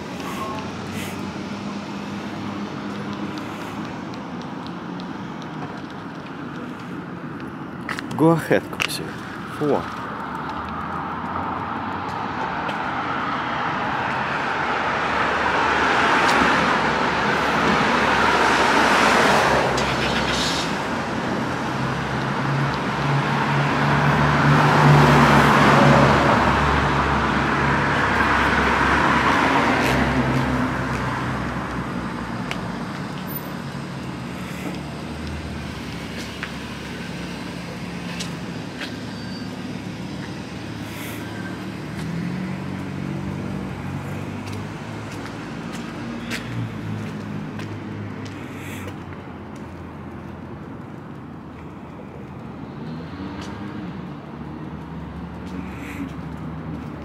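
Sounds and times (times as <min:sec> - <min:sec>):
cars driving past: 0:00.0 - 0:57.0.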